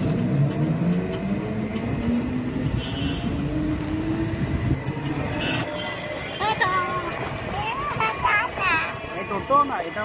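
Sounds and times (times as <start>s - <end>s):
road and traffic noise: 0.0s - 10.0s.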